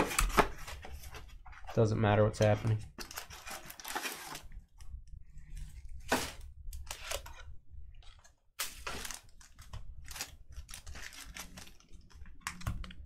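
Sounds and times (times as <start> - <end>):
cards and wrappers rustling: 0.0 - 4.5, 8.0 - 13.0.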